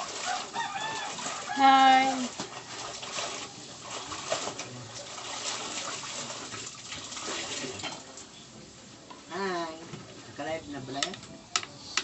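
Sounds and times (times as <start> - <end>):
wet clothes scrubbed by hand: 0.0 - 7.8
water sloshing and dripping: 0.0 - 8.3.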